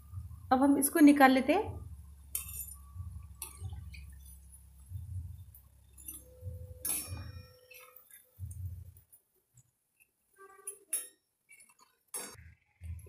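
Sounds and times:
metal utensils clinking on pan: 0:02.3 - 0:02.8, 0:06.0 - 0:08.4.

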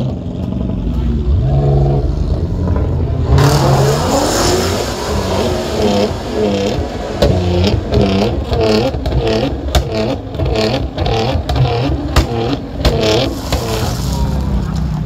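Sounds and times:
car engine revving: 0:00.0 - 0:15.0
exhaust cracks: 0:05.3 - 0:15.0.

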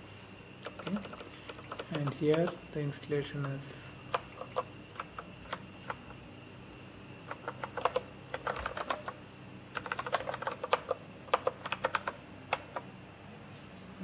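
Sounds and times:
typing on computer keyboard: 0:00.6 - 0:02.6, 0:03.4 - 0:06.2, 0:07.3 - 0:12.9.

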